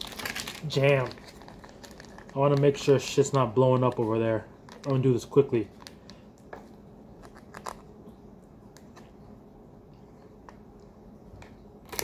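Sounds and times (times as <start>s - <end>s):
plastic packet crinkling: 0.0s - 7.9s
low steady hum: 0.0s - 12.0s.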